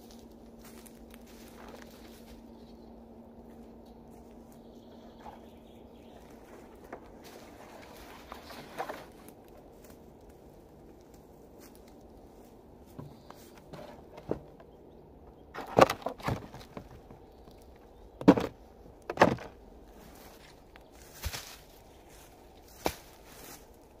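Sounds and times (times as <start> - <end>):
footsteps on dry forest litter: 0.0 - 14.2, 16.0 - 24.0
bricks knocking into plastic sled: 15.6 - 17.1, 18.2 - 19.6.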